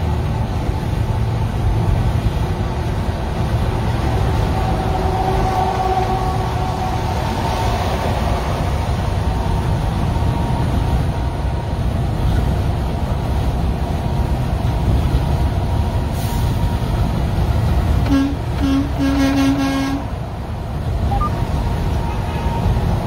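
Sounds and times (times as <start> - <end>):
vehicle road and engine rumble: 0.0 - 23.0
truck horn blasts: 4.6 - 7.1, 18.0 - 20.1.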